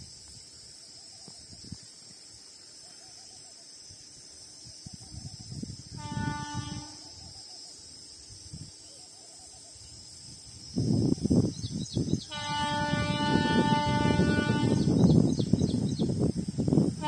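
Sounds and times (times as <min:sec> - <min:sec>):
high insect buzz: 0:00.0 - 0:17.0
distant train horn: 0:05.9 - 0:07.2, 0:12.2 - 0:15.0.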